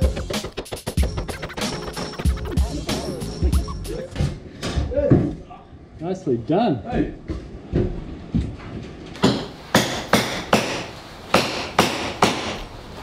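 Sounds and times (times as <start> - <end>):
hammer striking timber: 9.2 - 12.7.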